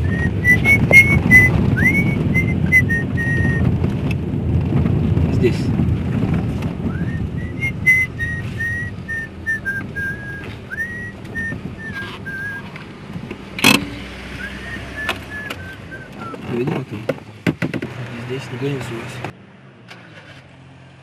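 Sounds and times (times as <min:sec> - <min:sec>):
person whistling a slow tune: 0:00.0 - 0:03.6, 0:06.9 - 0:12.7, 0:14.4 - 0:16.4
car engine rumble: 0:00.0 - 0:21.0.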